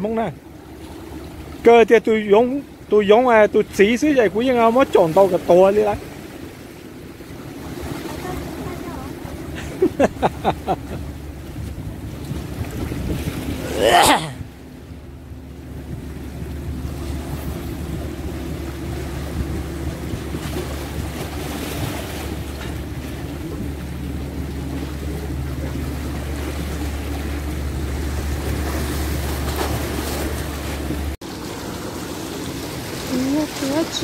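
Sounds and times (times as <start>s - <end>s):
waves splashing on rocks: 3.2s - 11.0s, 16.9s - 34.0s
wind rumbling on microphone: 5.9s - 31.7s.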